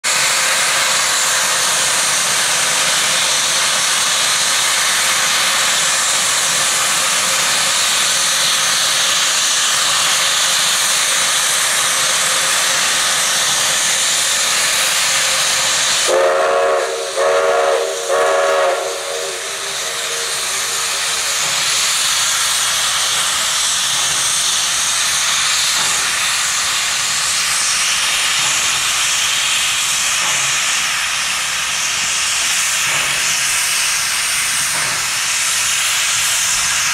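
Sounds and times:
steam locomotive hissing: 0.0s - 36.9s
steam whistle blasts: 16.0s - 21.6s.

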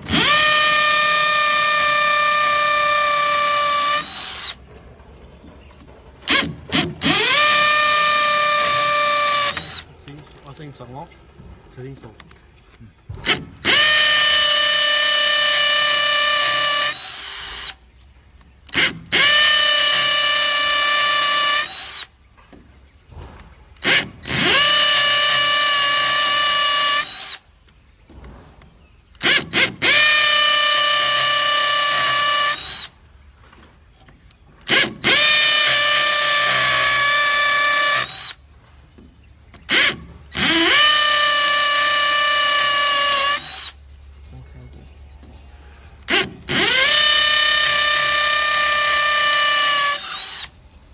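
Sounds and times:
hammer drill boring into brick: 0.0s - 4.6s, 6.3s - 9.9s, 13.2s - 17.8s, 18.7s - 22.1s, 23.8s - 27.4s, 29.2s - 33.0s, 34.6s - 38.4s, 39.6s - 43.8s, 46.0s - 50.5s.

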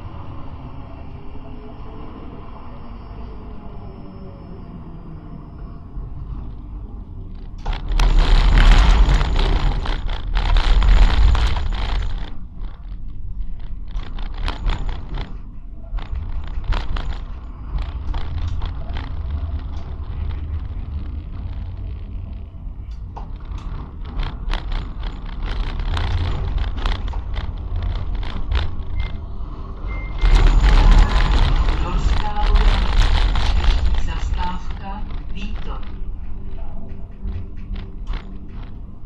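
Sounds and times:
tram wheels rumbling on rails: 0.0s - 39.0s
rattling and clicking: 7.3s - 39.0s.

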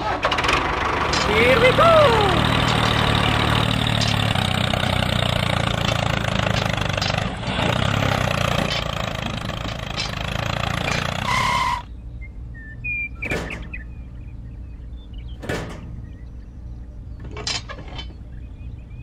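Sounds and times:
engine-like running noise: 0.0s - 19.0s
metal parts clicking down: 17.2s - 18.2s.

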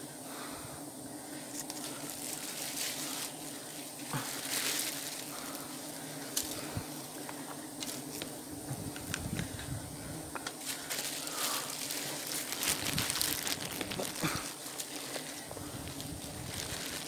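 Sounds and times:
twigs and leaves rustling: 1.1s - 17.0s
plastic bag crinkling: 1.5s - 3.4s, 4.0s - 5.4s, 10.6s - 17.0s.

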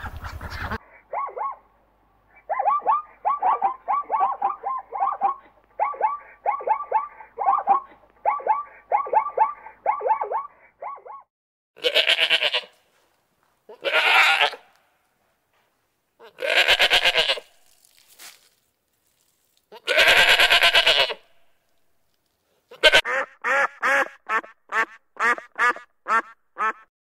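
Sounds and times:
duck quacking: 0.0s - 1.6s, 22.7s - 26.9s
goat bleating: 11.8s - 12.8s, 13.7s - 14.8s, 16.2s - 17.6s, 19.7s - 21.2s, 22.7s - 23.0s.

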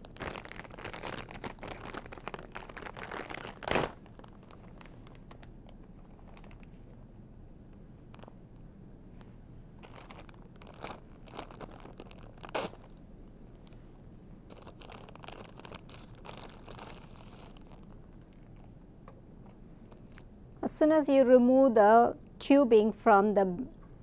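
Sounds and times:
plastic packaging crinkling: 0.0s - 6.9s, 8.0s - 8.4s, 9.8s - 18.7s.

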